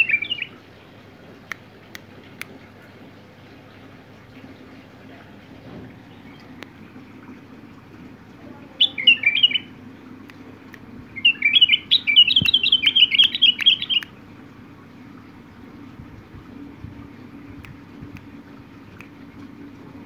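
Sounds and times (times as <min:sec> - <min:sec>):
bulbul singing: 0:00.0 - 0:00.6, 0:08.6 - 0:14.2.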